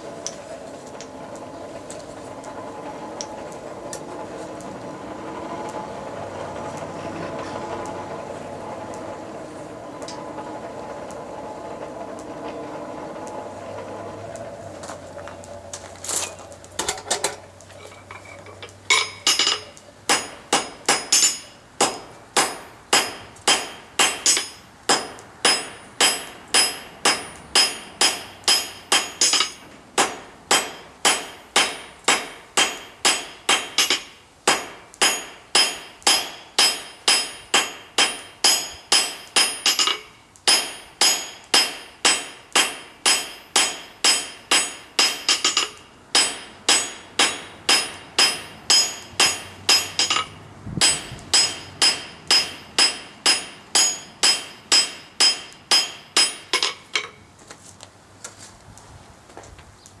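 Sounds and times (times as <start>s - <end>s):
hammer striking steel on anvil: 18.9s - 57.2s.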